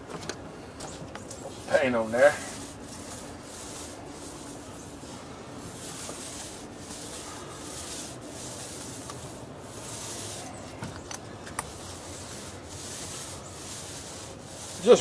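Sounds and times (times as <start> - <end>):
applicator rubbing on wood: 1.1 - 15.0.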